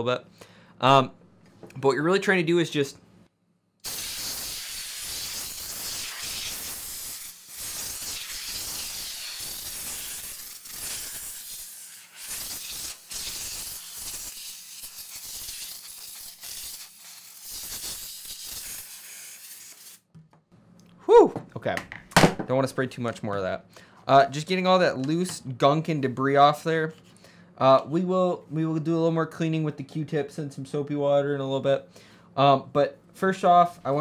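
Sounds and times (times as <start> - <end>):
compressed air can hissing: 3.8 - 20.0.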